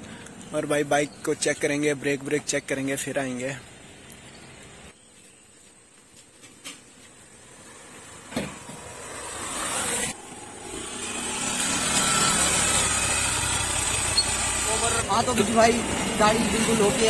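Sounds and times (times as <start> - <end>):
motorcycle engine running: 10.2 - 17.0.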